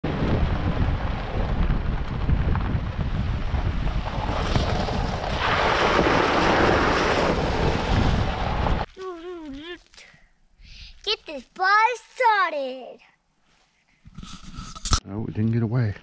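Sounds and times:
wind buffeting microphone: 0.0s - 8.9s
tyres rumbling over gravel: 0.1s - 8.9s
water splashing under tyres: 3.3s - 8.9s.

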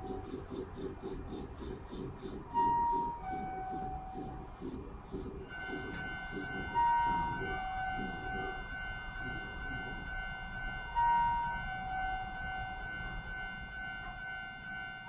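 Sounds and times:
electric train humming: 0.0s - 15.0s
electronic departure tones: 5.4s - 15.0s.

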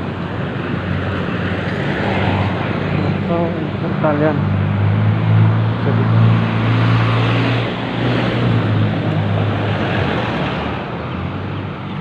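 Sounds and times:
road noise: 0.0s - 12.0s.

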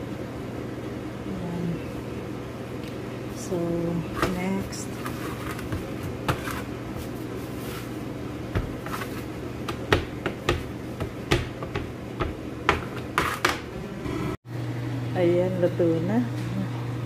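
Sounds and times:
steady low hum: 0.0s - 17.0s
rolling pin rolling dough: 4.2s - 13.7s
knocks on wooden board: 9.7s - 12.9s.

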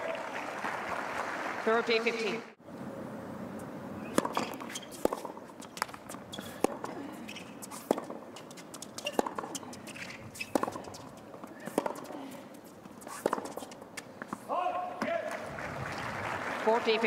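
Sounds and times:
tennis racket strikes: 4.0s - 12.2s, 12.9s - 15.1s
tennis ball bounces: 4.0s - 15.2s.

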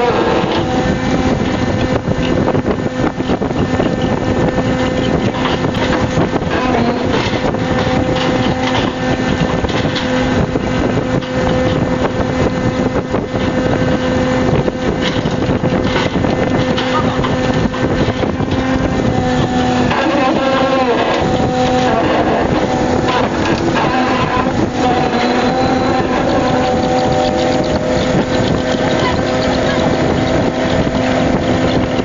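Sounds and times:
boat machinery humming: 0.0s - 32.0s
wind buffeting microphone: 0.0s - 32.0s.

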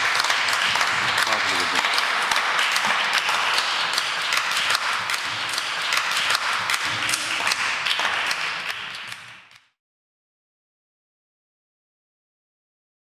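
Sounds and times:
crowd applauding: 0.0s - 9.7s.

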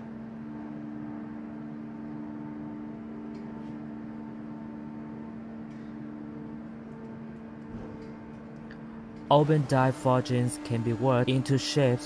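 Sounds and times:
forging press humming: 2.6s - 12.0s.

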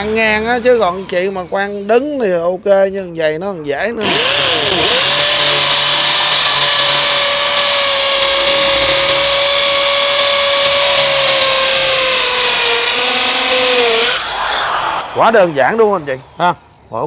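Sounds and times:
hammer drill boring into concrete: 4.0s - 16.6s.

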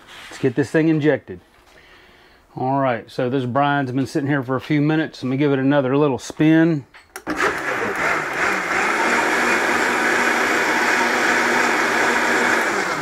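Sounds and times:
blender motor whirring: 7.2s - 13.0s
liquid churning in blender: 7.3s - 13.0s.

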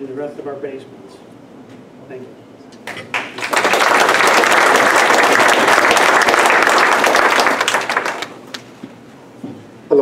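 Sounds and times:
audience applauding: 2.9s - 8.7s.

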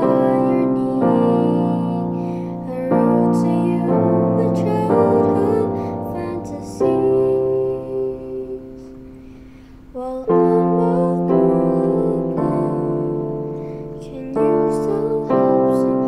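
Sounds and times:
electronic keyboard piano chords: 0.0s - 16.0s.

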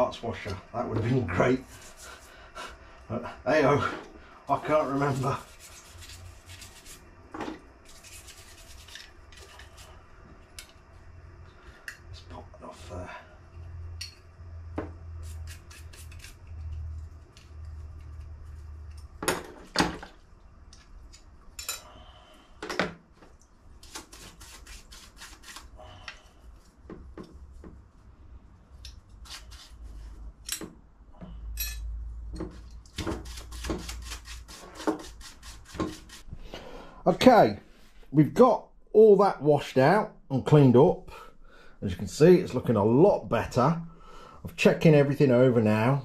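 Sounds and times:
scrubbing parts by hand: 7.8s - 10.0s.

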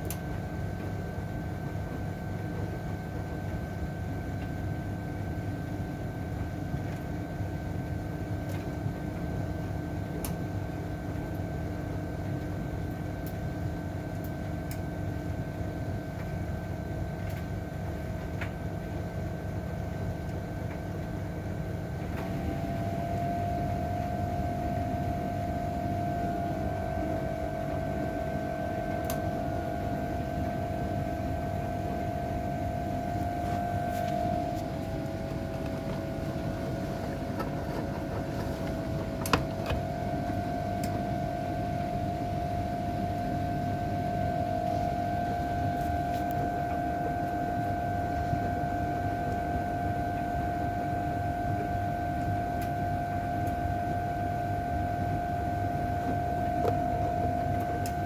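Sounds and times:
washing machine motor hum: 0.0s - 58.0s
washing machine drum turning: 22.0s - 51.0s.

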